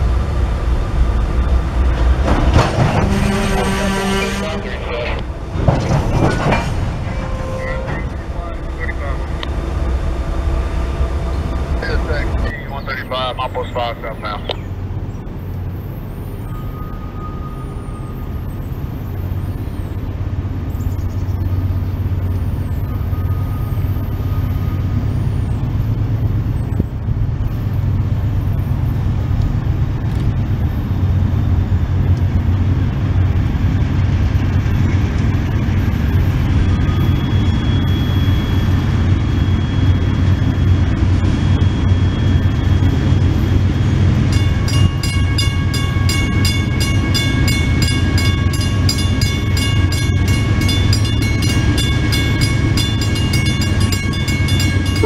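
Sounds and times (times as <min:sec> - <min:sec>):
diesel locomotive engine rumble: 0:00.0 - 0:55.0
bell ringing: 0:44.3 - 0:55.0.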